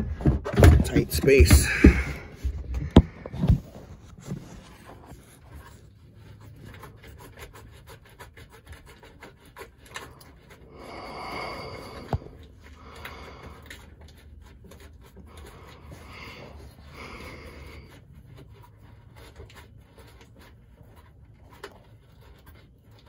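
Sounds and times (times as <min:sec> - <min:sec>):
hand rubbing against boat hull: 0:00.9 - 0:23.0.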